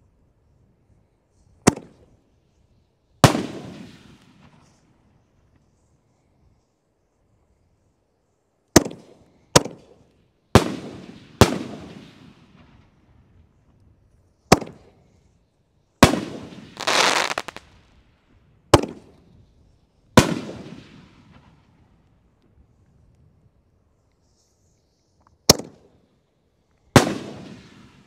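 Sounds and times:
firework crackle: 0:16.0 - 0:18.3
firework booms: 0:27.0 - 0:28.0.

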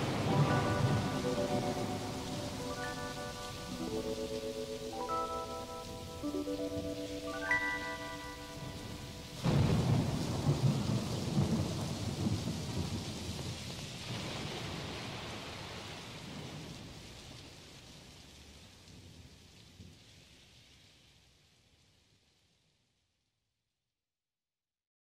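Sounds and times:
thunderclap rumbling: 0:00.0 - 0:06.8, 0:08.1 - 0:15.5
held musical chord: 0:00.0 - 0:09.5
rain hiss: 0:00.0 - 0:22.6.

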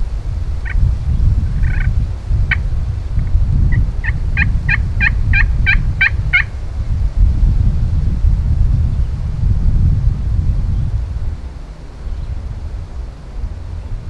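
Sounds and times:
wind rumble on microphone: 0:00.0 - 0:14.0
wild turkey yelping: 0:01.6 - 0:01.9, 0:03.7 - 0:06.5.

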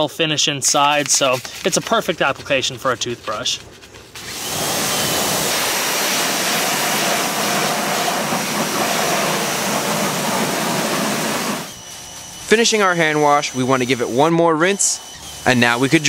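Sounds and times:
pressure washer water spray: 0:04.2 - 0:13.9.

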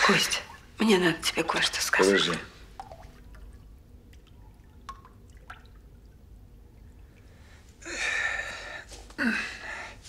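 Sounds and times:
water drips: 0:00.0 - 0:07.9.

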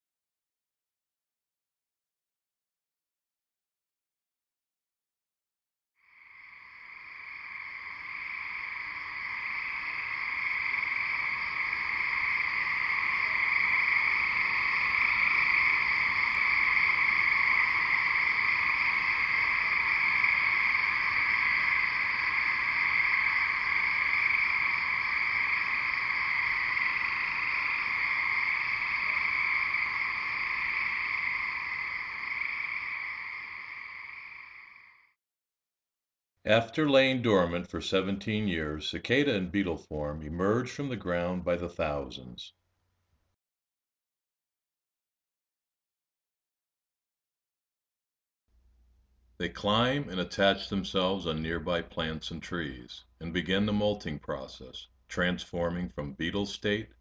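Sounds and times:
cicadas droning: 0:06.0 - 0:35.2.

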